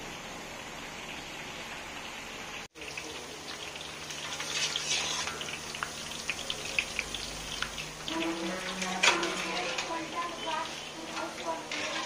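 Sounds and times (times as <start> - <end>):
batter sizzling in hot oil: 0.0 - 12.0
oil crackles and pops: 2.7 - 12.0.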